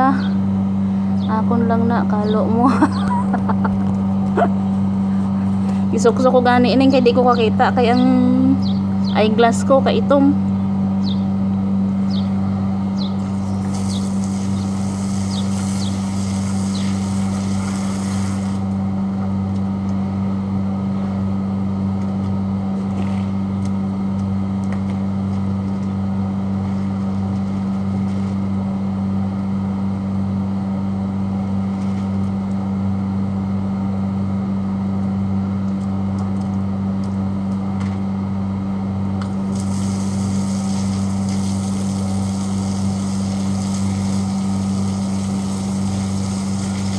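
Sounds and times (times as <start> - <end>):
low machine hum: 0.0 - 46.9
hose water splashing on concrete: 13.2 - 18.7, 39.4 - 46.9.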